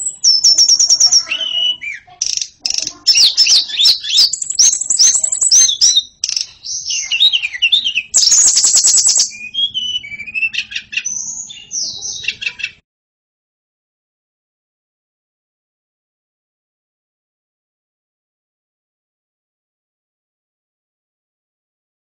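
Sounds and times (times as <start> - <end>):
songbird singing high whistles: 0.0 - 11.7.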